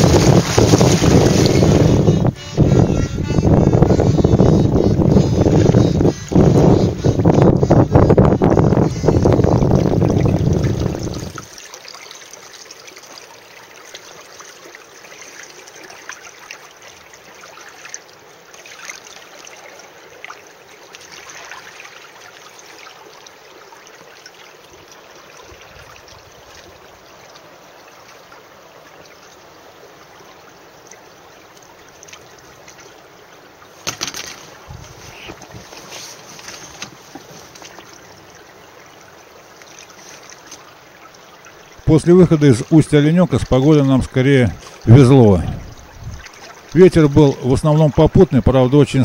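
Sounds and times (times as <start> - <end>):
wind buffeting microphone: 0.0 - 11.5, 34.6 - 35.6, 44.5 - 46.3
water lapping against hulls: 0.0 - 49.0.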